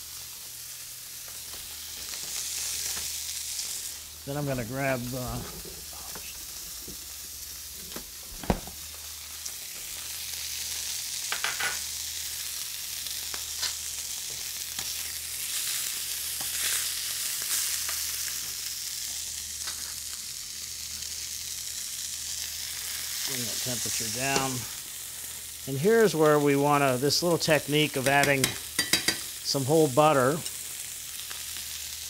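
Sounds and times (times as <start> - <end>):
steaks sizzling in skillet: 0.0 - 32.0.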